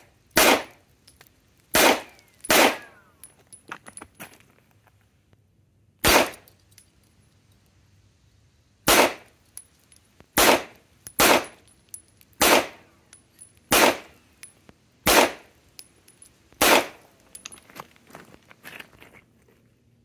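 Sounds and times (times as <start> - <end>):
pistol shots with echo: 0.4 - 0.8, 1.7 - 3.0, 6.0 - 6.4, 8.9 - 9.3, 10.4 - 11.6, 12.4 - 12.9, 13.7 - 14.2, 15.0 - 15.5, 16.6 - 17.0.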